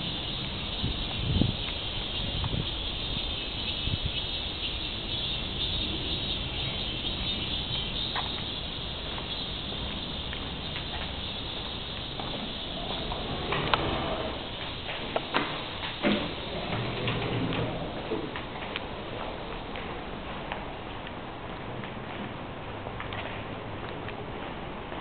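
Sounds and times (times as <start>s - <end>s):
high-pitched insect chorus: 0.0s - 19.6s.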